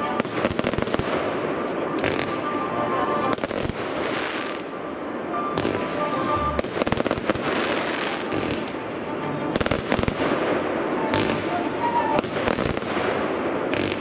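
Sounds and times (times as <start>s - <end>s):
fireworks bursting with crackle: 0.0s - 14.0s
volleys of sharp bangs: 12.2s - 14.0s.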